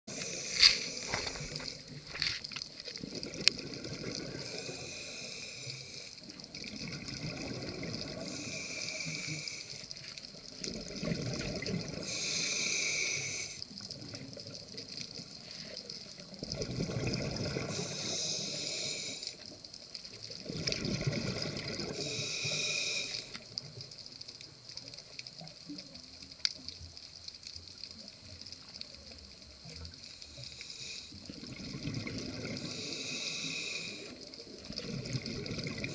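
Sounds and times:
regulator inhale hiss: 0:00.1 - 0:02.0, 0:04.3 - 0:06.4, 0:08.2 - 0:10.2, 0:12.0 - 0:13.8, 0:15.2 - 0:16.1, 0:17.6 - 0:19.6, 0:21.8 - 0:23.5, 0:29.9 - 0:31.3, 0:32.6 - 0:34.5
exhaled bubbles rushing: 0:03.0 - 0:04.7, 0:06.5 - 0:08.4, 0:10.5 - 0:12.1, 0:16.3 - 0:17.9, 0:20.4 - 0:22.0, 0:31.3 - 0:32.9, 0:34.5 - 0:35.9.

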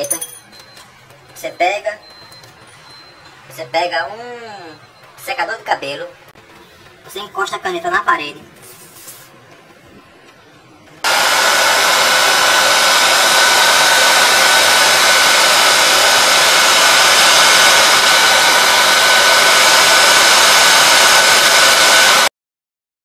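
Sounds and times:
hair dryer blowing: 0:11.0 - 0:22.3.

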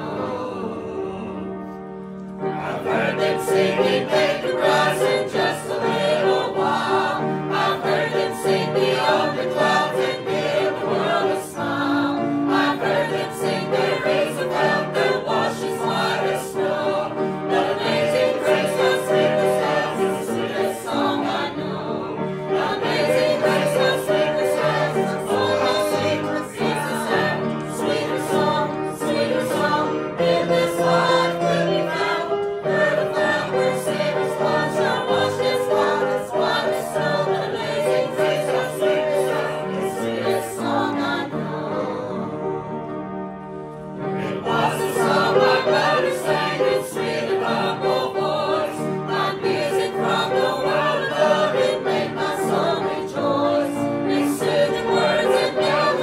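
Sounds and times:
gospel voices singing together: 0:00.0 - 0:43.4, 0:44.0 - 0:56.0.

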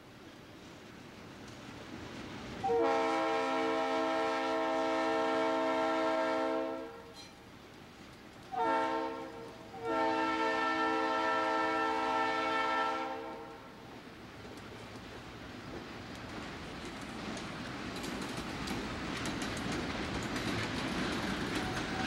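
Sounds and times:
locomotive air horn blasts: 0:02.6 - 0:07.2, 0:08.5 - 0:13.7.

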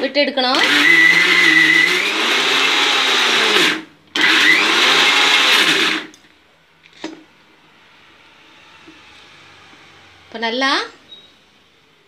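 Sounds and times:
mixer grinder motor grinding: 0:00.0 - 0:06.2.

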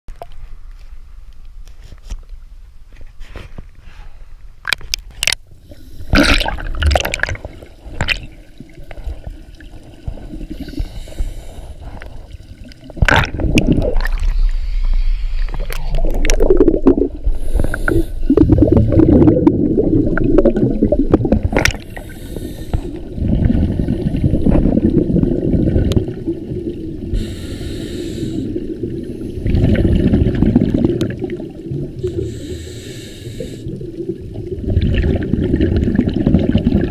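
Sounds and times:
gurgling bubble bursts: 0:06.1 - 0:10.7, 0:12.7 - 0:14.7, 0:15.4 - 0:22.0, 0:23.0 - 0:27.2, 0:28.6 - 0:32.2, 0:33.6 - 0:36.9.

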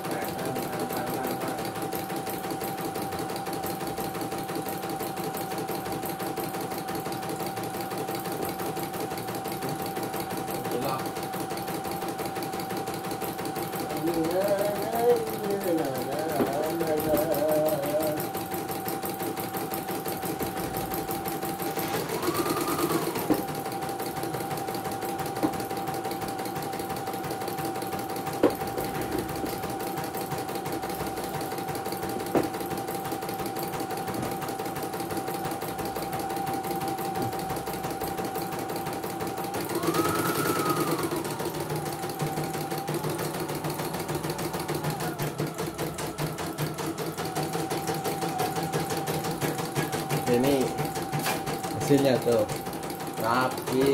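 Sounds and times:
embroidery machine motor whine: 0:39.6 - 0:49.4.

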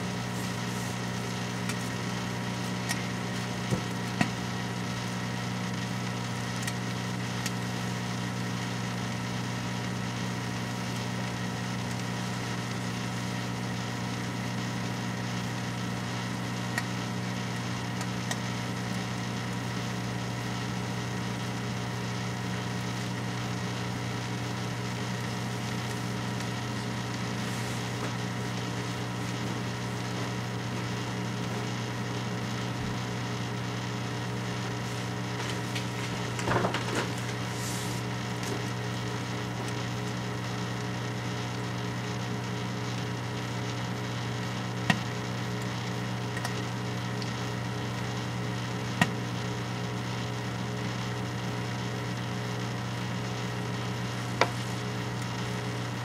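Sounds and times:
microwave oven humming: 0:00.0 - 0:56.0
faint sparking clicks: 0:07.4 - 0:07.6.

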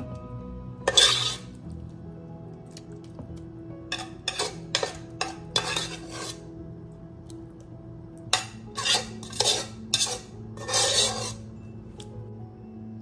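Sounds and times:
background music: 0:00.0 - 0:13.0
metal spoon scraping metal pot: 0:00.8 - 0:01.6, 0:03.9 - 0:06.5, 0:08.3 - 0:11.6.

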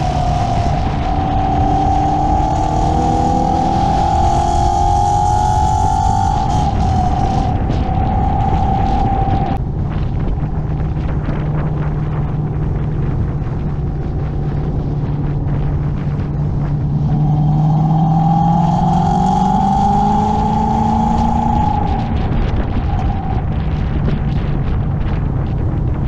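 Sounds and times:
car engine running: 0:00.0 - 0:26.0.

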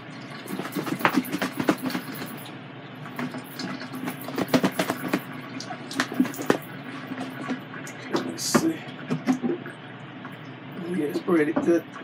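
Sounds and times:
shaken plastic bowl rattling: 0:00.4 - 0:02.5, 0:03.2 - 0:07.4.

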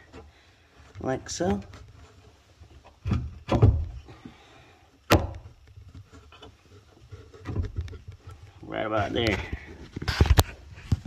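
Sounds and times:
parts thumping into place: 0:02.9 - 0:04.2, 0:05.1 - 0:06.5.

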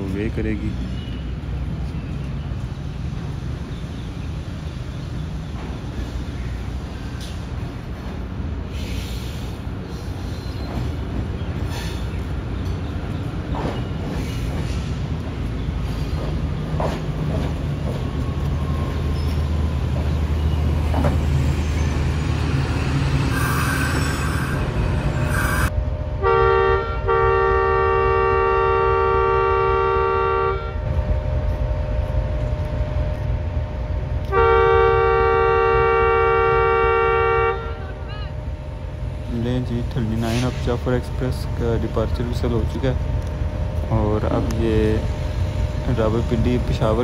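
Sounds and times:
diesel train rumbling: 0:00.0 - 0:47.0
locomotive air horn blasts: 0:25.3 - 0:30.9, 0:34.2 - 0:37.9.

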